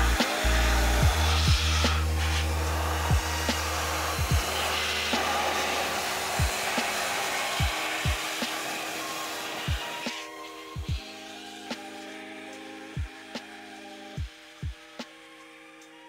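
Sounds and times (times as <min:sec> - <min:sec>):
electric blower rush of air: 0:00.0 - 0:14.7
lo-fi music: 0:00.0 - 0:16.0
deep dropping kick drum: 0:03.1 - 0:03.3, 0:04.2 - 0:04.5.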